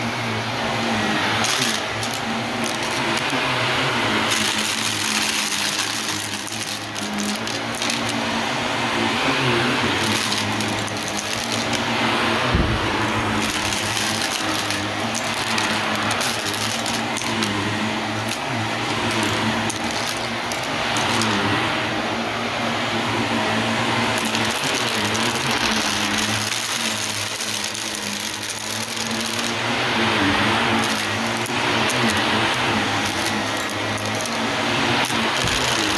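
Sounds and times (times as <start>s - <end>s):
upright vacuum running over rug: 0.0s - 35.9s
thump: 12.5s - 12.9s.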